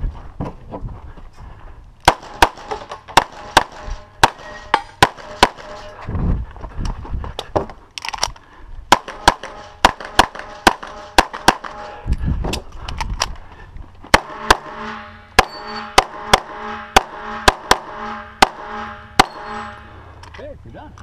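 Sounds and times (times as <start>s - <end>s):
rapid pistol shots: 2.1s - 5.8s, 8.9s - 11.9s, 14.1s - 14.8s, 15.4s - 19.6s.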